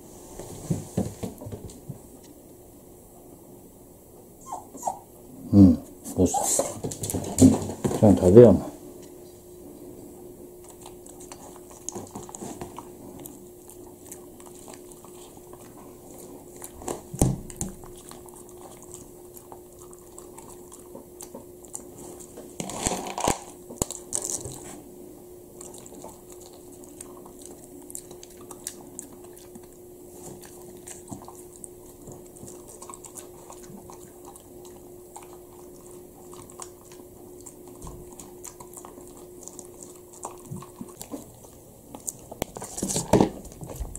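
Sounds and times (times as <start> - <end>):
faint steady hum: 0.0 - 43.9
clicks of teeth and kibble: 10.6 - 24.8, 25.6 - 43.9
dog crunching dry kibble: 10.6 - 24.9, 25.5 - 43.9.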